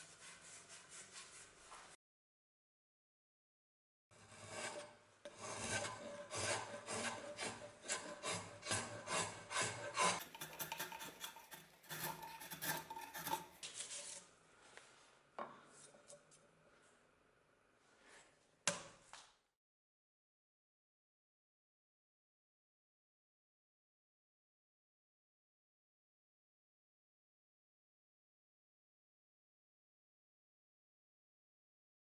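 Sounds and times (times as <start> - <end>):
drawknife scraping dry wood: 4.2 - 14.2.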